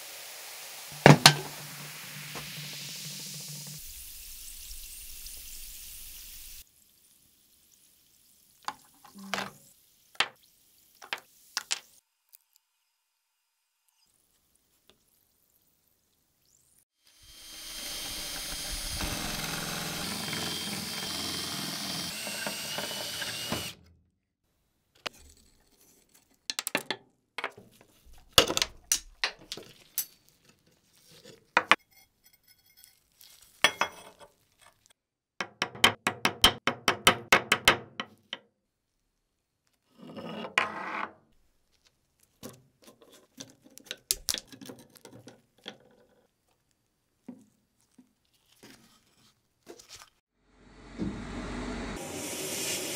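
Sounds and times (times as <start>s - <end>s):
power drill drilling: 17.1s - 23.9s
metal parts clinking and scraping: 28.8s - 33.1s.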